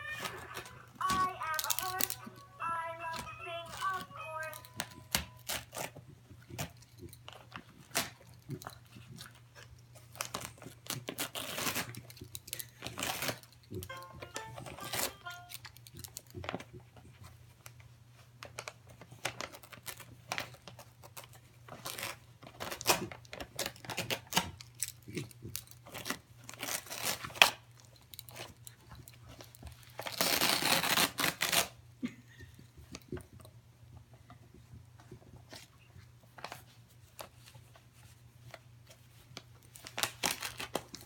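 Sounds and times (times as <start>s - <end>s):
wrapping paper crinkling and ripping: 0.0s - 8.2s, 10.0s - 16.6s, 18.4s - 27.6s, 29.5s - 31.8s, 38.5s - 41.0s.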